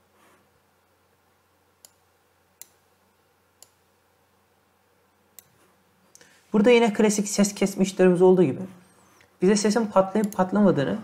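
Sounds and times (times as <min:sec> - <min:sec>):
computer mouse clicks: 0:01.8 - 0:02.8, 0:03.6 - 0:03.8, 0:05.3 - 0:06.3, 0:10.2 - 0:10.5.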